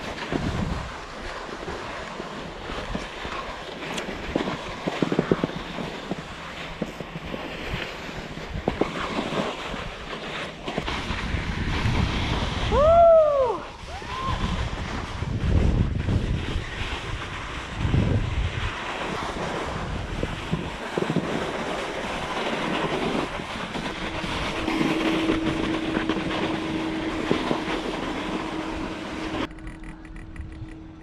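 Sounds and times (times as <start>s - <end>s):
skis scraping over snow: 0.0s - 29.5s
wind buffeting microphone: 0.0s - 31.0s
steady low hum: 17.8s - 31.0s.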